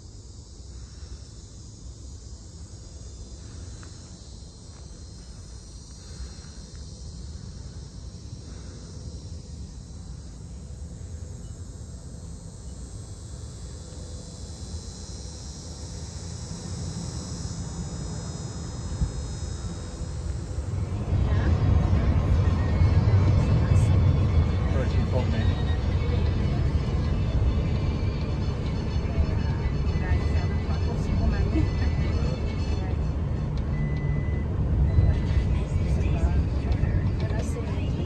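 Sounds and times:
high-pitched insect chorus: 0:00.0 - 0:38.0
van driving up: 0:00.0 - 0:38.0
low rumble: 0:18.9 - 0:38.0.

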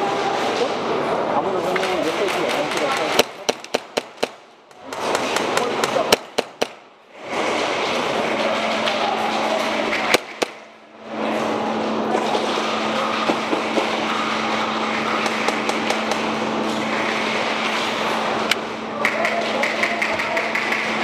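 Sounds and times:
steady hum and hiss: 0:00.0 - 0:21.0
airsoft guns firing: 0:02.3 - 0:06.8, 0:10.0 - 0:10.6.

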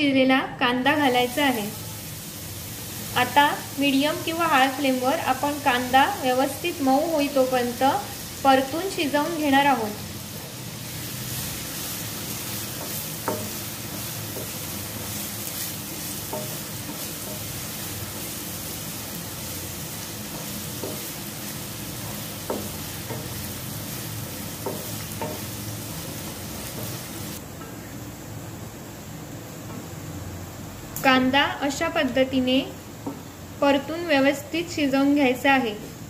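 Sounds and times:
onions sizzling in oil: 0:00.7 - 0:36.0
wooden spatula knocking on pan: 0:12.7 - 0:14.6, 0:16.2 - 0:17.5, 0:20.3 - 0:21.1, 0:22.0 - 0:23.4, 0:24.6 - 0:25.5.

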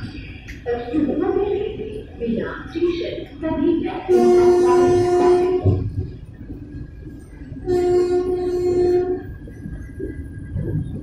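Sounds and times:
train horn blasts: 0:04.1 - 0:05.9, 0:07.6 - 0:09.4.

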